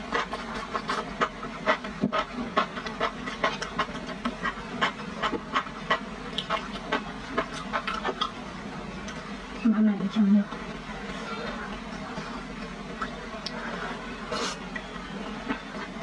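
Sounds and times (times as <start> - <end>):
wet chewing mouth clicks: 0.1 - 8.4.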